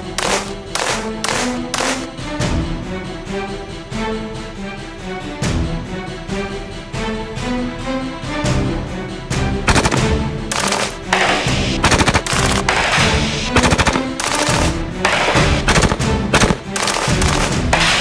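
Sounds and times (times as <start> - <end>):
rifle shots: 0.0 - 2.2, 9.7 - 18.0
background music: 0.0 - 18.0.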